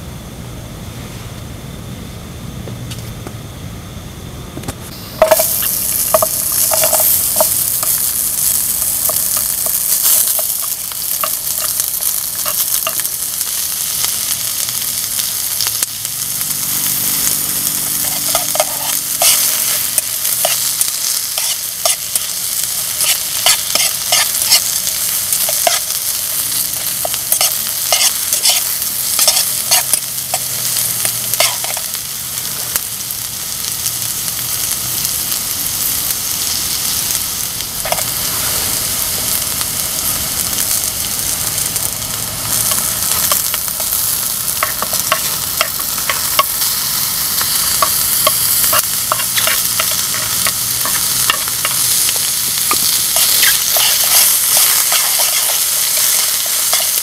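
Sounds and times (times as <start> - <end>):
mushrooms sizzling in a pan: 4.8 - 57.0
spatula scraping a pan: 18.0 - 30.7, 47.3 - 57.0.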